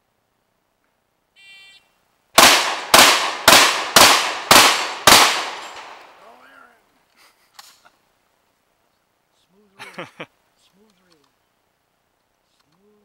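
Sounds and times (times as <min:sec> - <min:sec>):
shotgun shots with echo: 0:02.4 - 0:06.2.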